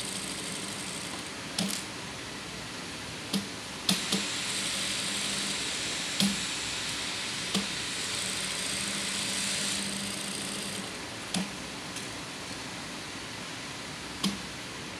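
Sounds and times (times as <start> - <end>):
sewing machine stitching: 8.1 - 10.9.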